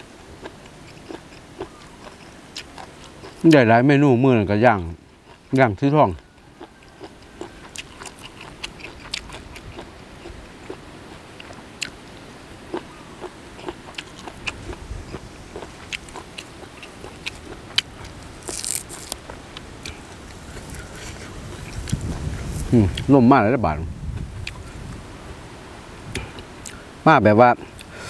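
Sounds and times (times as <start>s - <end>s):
crunchy chewing: 0.0s - 3.7s, 4.8s - 23.1s
herb sprig tearing: 17.1s - 19.2s.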